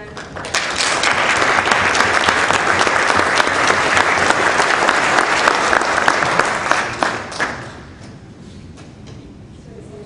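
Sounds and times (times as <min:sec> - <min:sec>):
audience applauding: 0:00.2 - 0:08.0.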